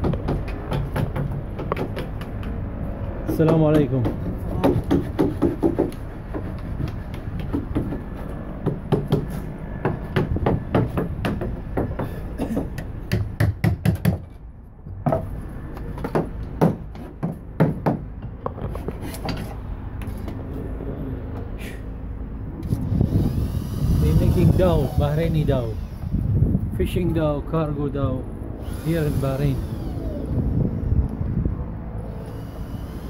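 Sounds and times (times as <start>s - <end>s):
hammer strikes on timber: 0.0s - 2.6s, 3.3s - 14.3s, 16.0s - 18.3s
steady low rumble: 19.7s - 32.3s.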